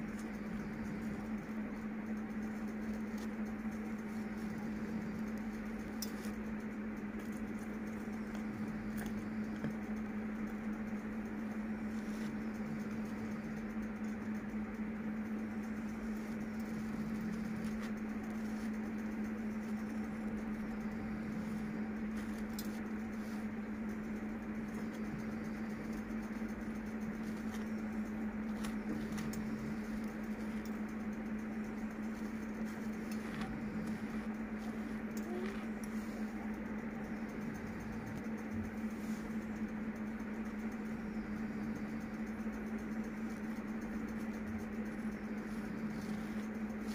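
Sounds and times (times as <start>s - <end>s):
steady low hum: 0.0s - 46.9s
knife spreading peanut butter: 15.7s - 36.6s.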